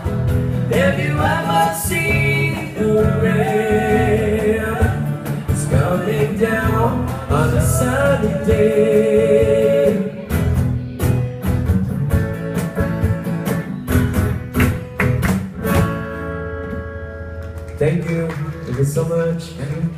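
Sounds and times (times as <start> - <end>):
strummed acoustic guitars: 0.0 - 19.9
man singing: 0.6 - 10.4.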